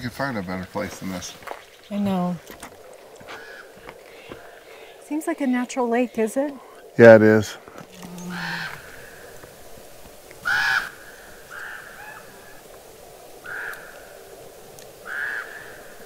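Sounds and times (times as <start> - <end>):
crows cawing: 2.6 - 5.0, 7.7 - 9.6, 10.3 - 12.7, 13.4 - 16.0.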